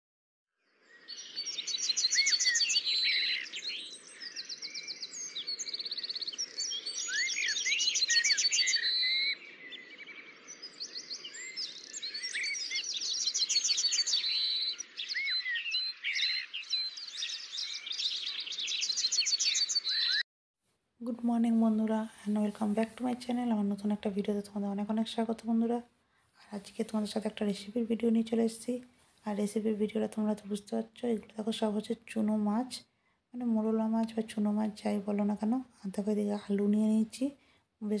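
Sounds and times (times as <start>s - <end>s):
birds chirping and singing: 0.7s - 20.2s.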